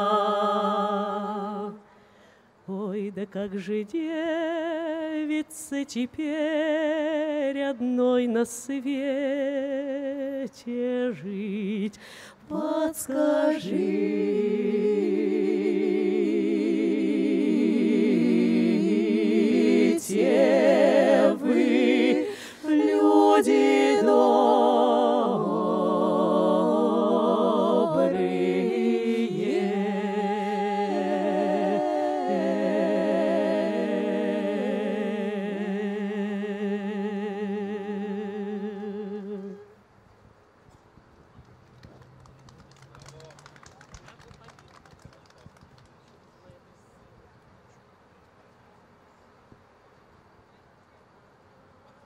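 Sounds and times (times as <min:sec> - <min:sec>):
women singing in close harmony: 0:00.0 - 0:01.9, 0:02.7 - 0:39.8.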